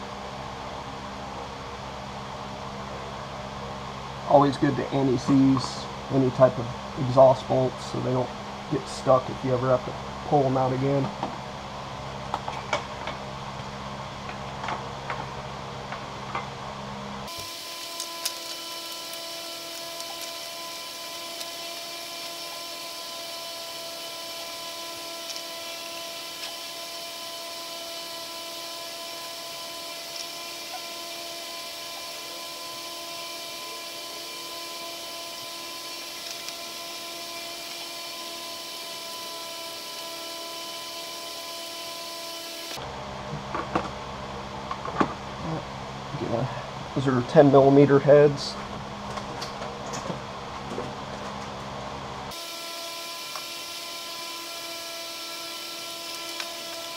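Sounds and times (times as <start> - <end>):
mechanical whine: 16.3 - 43.9, 52.3 - 56.9.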